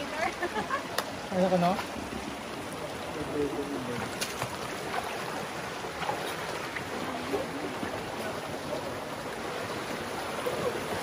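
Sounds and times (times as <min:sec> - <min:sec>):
flowing stream water: 0:00.0 - 0:11.0.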